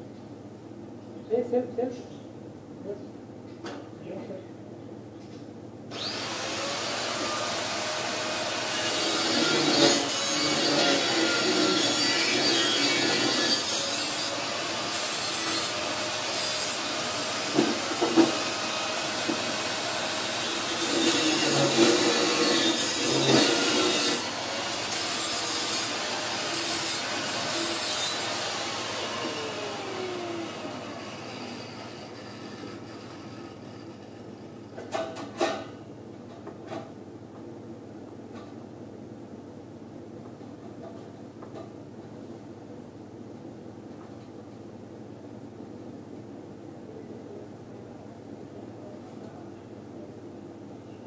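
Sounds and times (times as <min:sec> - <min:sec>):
rasping and scraping on steel: 0:31.0 - 0:34.8.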